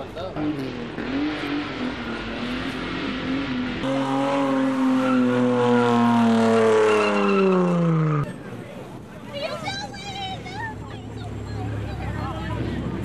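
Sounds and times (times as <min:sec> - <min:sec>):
car engine at high revs: 0:00.4 - 0:08.3.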